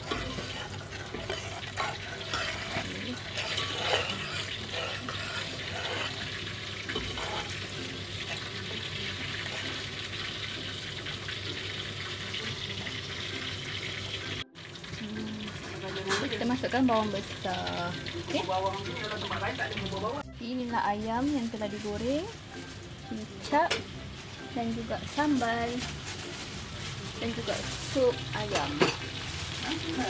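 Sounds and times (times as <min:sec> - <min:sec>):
metal ladle scraping pan: 0:00.0 - 0:10.2, 0:27.4 - 0:30.0.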